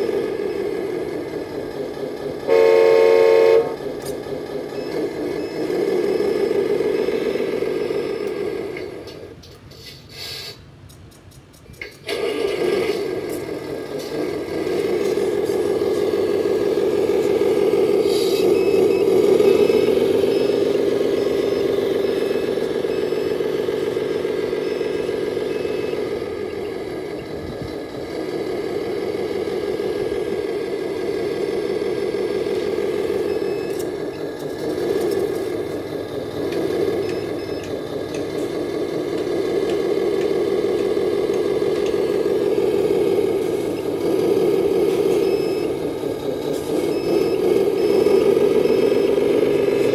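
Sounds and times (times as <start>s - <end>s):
toy truck engine drone: 0.0s - 9.4s, 12.0s - 49.9s
faint beeping: 14.6s - 27.4s, 41.9s - 49.9s.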